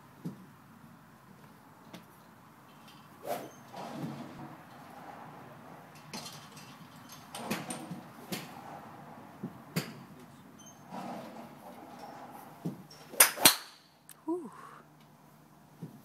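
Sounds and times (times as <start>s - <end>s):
golf clubs hitting balls: 6.0s - 8.6s, 9.4s - 10.4s, 12.6s - 13.9s.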